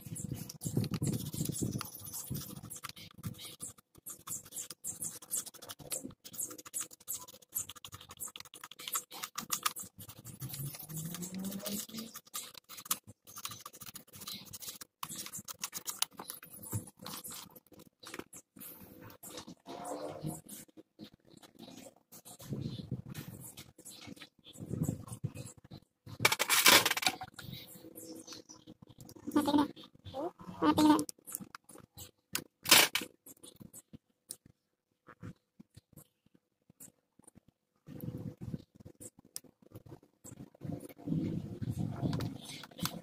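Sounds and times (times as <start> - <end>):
sandpaper scratching: 0.0 - 17.7.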